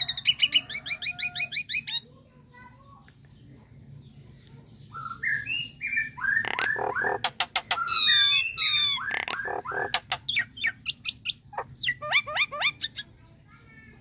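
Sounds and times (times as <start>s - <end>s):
bird squawks: 5.0s - 13.1s
bird sharp clicks: 6.4s - 7.9s, 9.1s - 10.3s.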